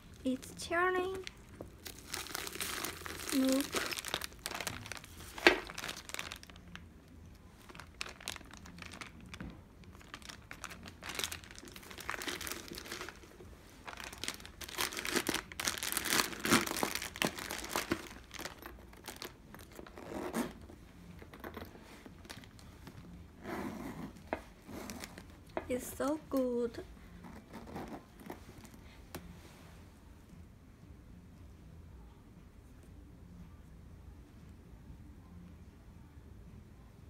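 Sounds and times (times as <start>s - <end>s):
plastic wrap crinkling: 0.2s - 6.9s, 7.6s - 20.3s.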